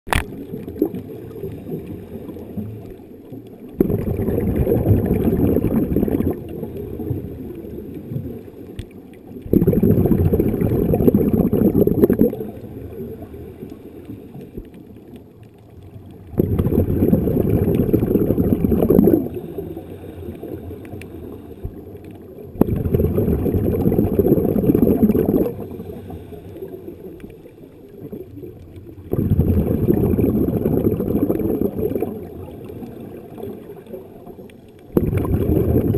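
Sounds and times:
diver exhaling bubbles underwater: 0:00.2 - 0:03.0, 0:03.7 - 0:08.4, 0:09.4 - 0:13.3, 0:16.2 - 0:20.8, 0:22.4 - 0:26.8, 0:28.0 - 0:35.9.

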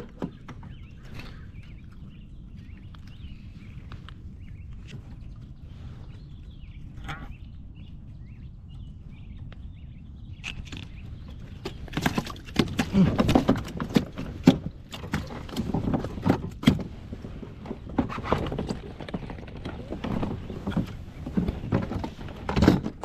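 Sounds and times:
steady low rumble: 0:00.0 - 0:13.1.

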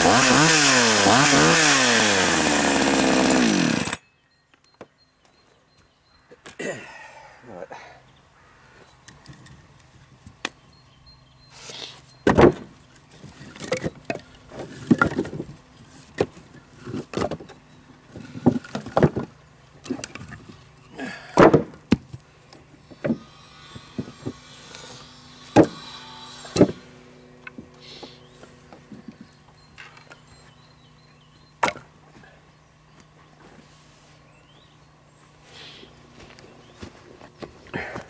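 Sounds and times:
wooden logs knocking together: 0:12.2 - 0:12.7, 0:13.4 - 0:15.5, 0:16.2 - 0:17.6, 0:18.2 - 0:20.6, 0:21.2 - 0:22.2, 0:25.5 - 0:25.8, 0:26.5 - 0:26.8, 0:31.6 - 0:31.9.

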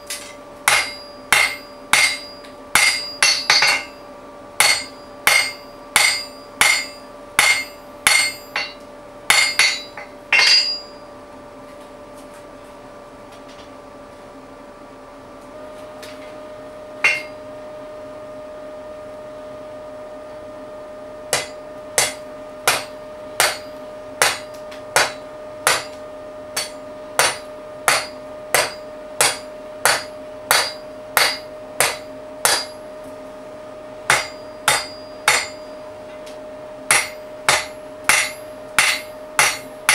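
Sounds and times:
hammer striking steel on anvil: 0:00.0 - 0:04.0, 0:04.6 - 0:11.0, 0:17.0 - 0:17.4, 0:21.3 - 0:32.9, 0:34.0 - 0:39.9
steady hum: 0:00.0 - 0:39.9.

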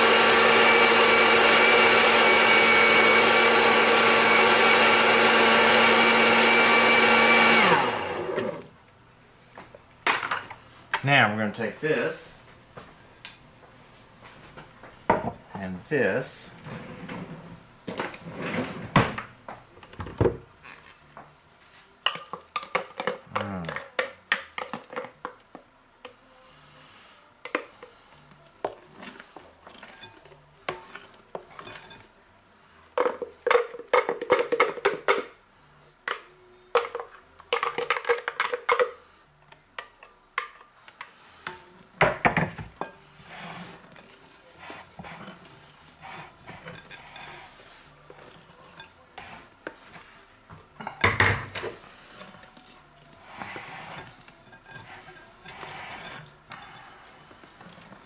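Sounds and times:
spatula scraping mixing bowl: 0:42.8 - 0:50.3, 0:51.8 - 0:58.0.

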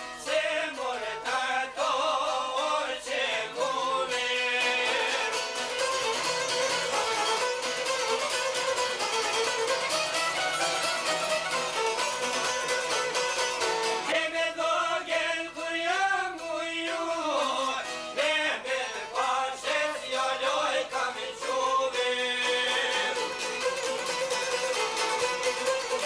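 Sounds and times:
man singing folk song: 0:00.0 - 0:06.9, 0:14.0 - 0:26.0
plucked lutes: 0:03.6 - 0:14.2, 0:15.9 - 0:26.0
violin playing: 0:05.3 - 0:14.0.

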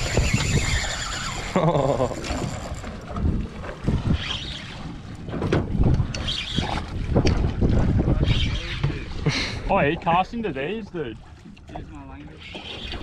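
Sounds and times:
wind buffeting microphone: 0:00.0 - 0:01.5, 0:02.1 - 0:10.6
knocks against boat: 0:05.3 - 0:06.1.

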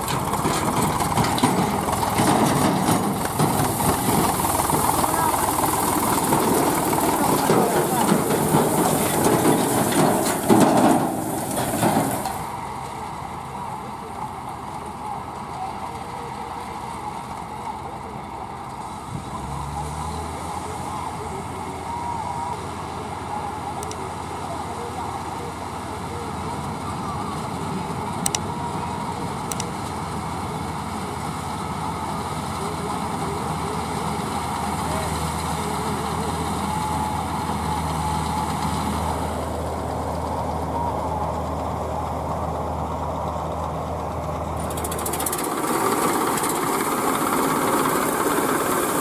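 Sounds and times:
irregular clattering: 0:00.0 - 0:12.4
tractor engine running: 0:00.0 - 0:19.4, 0:20.1 - 0:49.0.

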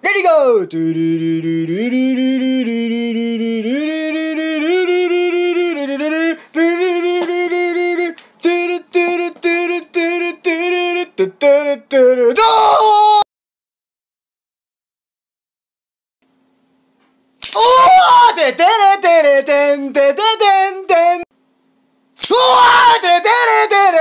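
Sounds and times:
person singing a melody: 0:00.0 - 0:13.2, 0:17.5 - 0:21.3, 0:22.2 - 0:24.0.

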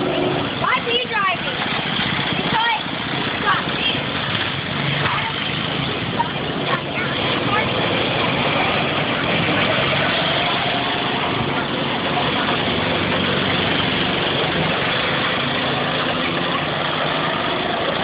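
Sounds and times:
go-kart engines droning: 0:00.0 - 0:18.0.

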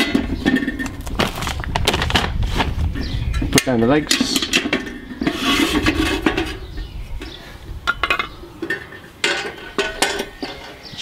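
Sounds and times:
metal scraping and clinking: 0:03.4 - 0:11.0.

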